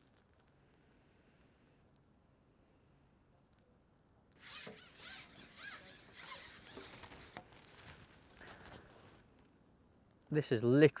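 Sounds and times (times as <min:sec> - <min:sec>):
pole scraping over roller: 0:04.4 - 0:08.0.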